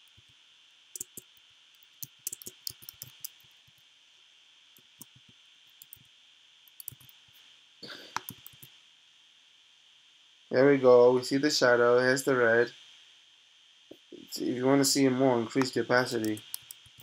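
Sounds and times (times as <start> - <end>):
computer keyboard keys clicking: 1.0 - 1.3, 2.0 - 3.4, 5.8 - 6.0, 6.8 - 7.1, 8.2 - 8.7, 16.1 - 17.0
steady hiss: 13.9 - 17.0.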